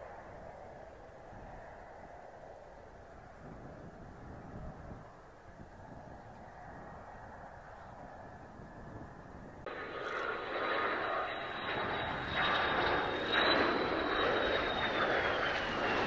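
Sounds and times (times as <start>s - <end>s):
jet passing low: 0.0s - 16.0s
high jet whine: 9.6s - 16.0s.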